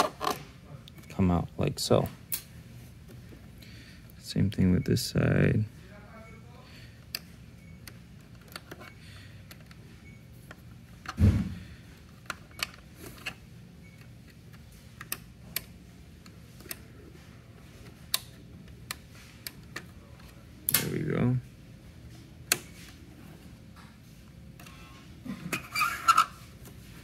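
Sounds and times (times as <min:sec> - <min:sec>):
dull thump: 0:11.2 - 0:11.6.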